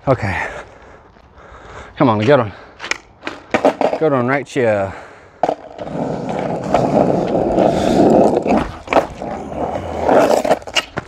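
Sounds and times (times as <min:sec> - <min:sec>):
skateboard wheels rolling on asphalt: 0:02.0 - 0:11.0
skateboard clacks: 0:02.9 - 0:04.1, 0:05.4 - 0:09.3.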